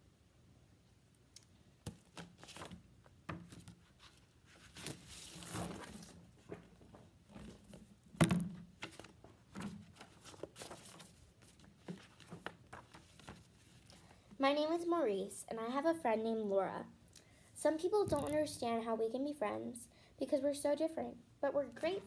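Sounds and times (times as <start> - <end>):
book pages turning: 1.8 - 2.8, 3.5 - 6.6, 8.8 - 13.9, 18.1 - 18.5
paper rustling with soft taps: 1.8 - 14.0.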